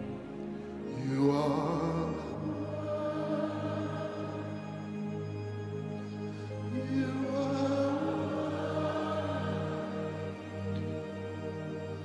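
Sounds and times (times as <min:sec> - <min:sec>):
slow worship music: 0:00.0 - 0:12.0
voices singing: 0:00.8 - 0:05.4, 0:06.6 - 0:11.3.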